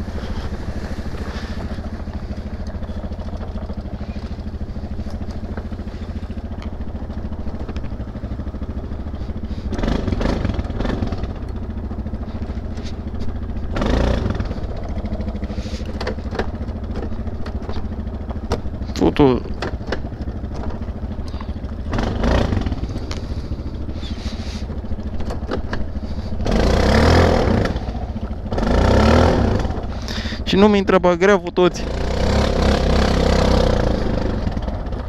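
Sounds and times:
atv engine running: 0.0 - 35.0
knocks and clatter from vehicle: 0.4 - 9.0, 9.6 - 26.8.

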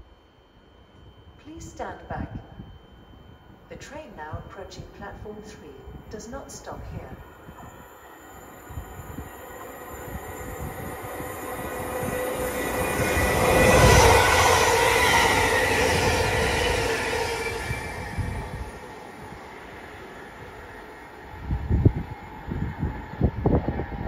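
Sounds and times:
electric train passing: 0.0 - 1.5, 2.3 - 24.0
train whine: 0.0 - 24.0
wheels rumbling on rails: 8.4 - 24.0.

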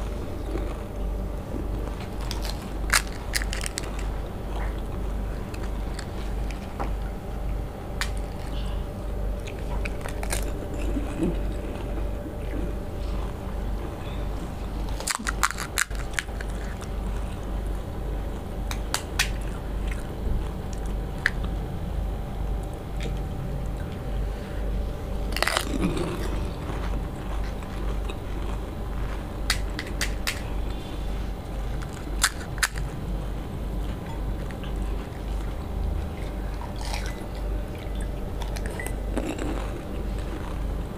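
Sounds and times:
wet chewing: 0.0 - 7.1, 7.9 - 21.6, 25.2 - 30.5, 33.8 - 40.9
crisp shells cracking: 2.0 - 4.2, 14.9 - 17.0, 25.3 - 28.6, 29.4 - 30.5, 31.8 - 32.9.

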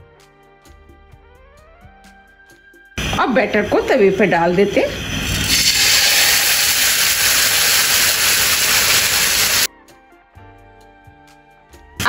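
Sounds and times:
faint background music: 0.0 - 5.0
batter sizzling on hot pan: 4.4 - 9.7.

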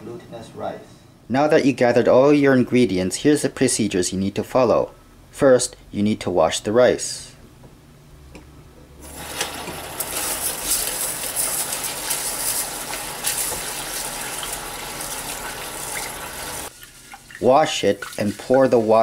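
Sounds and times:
tap water gushing into pot: 9.0 - 18.8.

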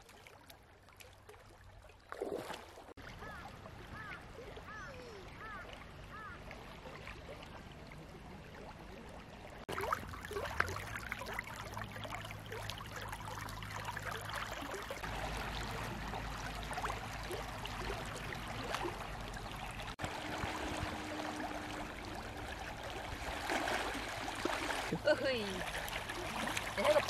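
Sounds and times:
river water over pebbles: 0.0 - 27.0.

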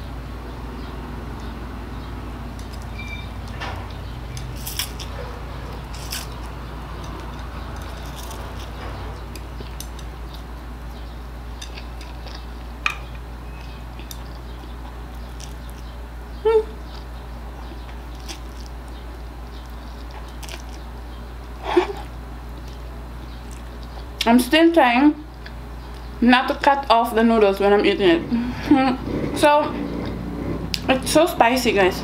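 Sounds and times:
steady low hum: 0.0 - 32.0.

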